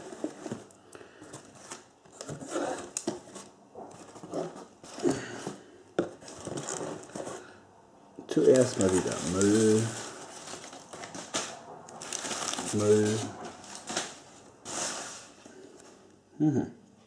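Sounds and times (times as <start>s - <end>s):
newspaper rustling and crinkling: 8.3s - 16.0s.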